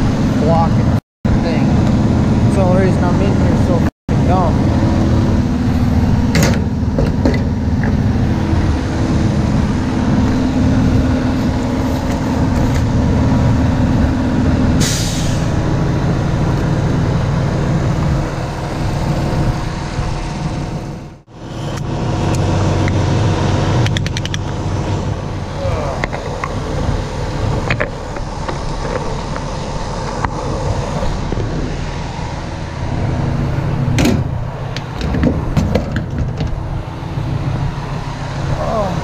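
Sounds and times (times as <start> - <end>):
diesel truck engine running: 0.0 - 39.0
air brakes hissing: 14.8 - 15.6.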